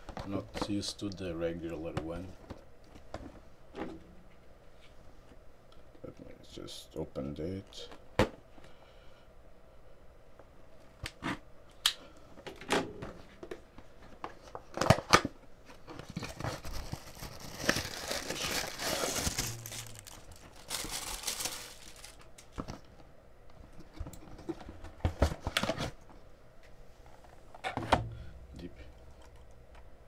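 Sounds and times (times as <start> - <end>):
packaging crinkling and tearing: 15.9 - 22.8.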